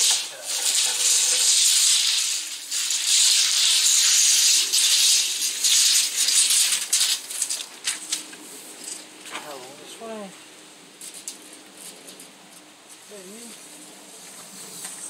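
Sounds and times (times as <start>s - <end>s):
tape measure rattling on concrete: 0.0s - 9.2s, 11.0s - 13.0s.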